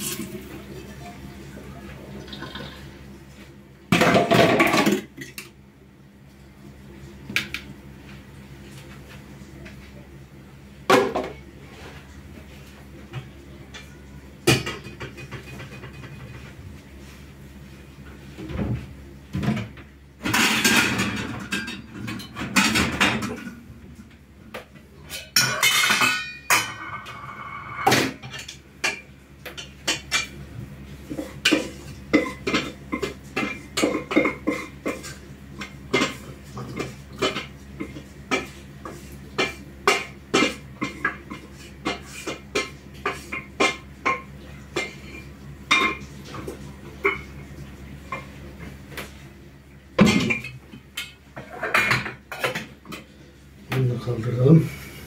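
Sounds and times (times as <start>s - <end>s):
steel pots and lids clattering: 20.2s - 23.6s, 25.0s - 30.4s, 31.1s - 38.5s, 39.4s - 47.3s.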